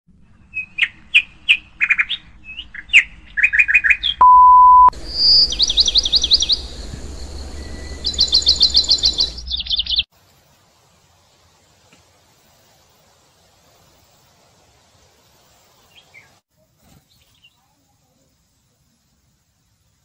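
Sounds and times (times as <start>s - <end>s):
sharp bird chirps: 0.5s - 10.1s
high beep: 4.2s - 5.0s
birds trilling: 5.0s - 10.1s.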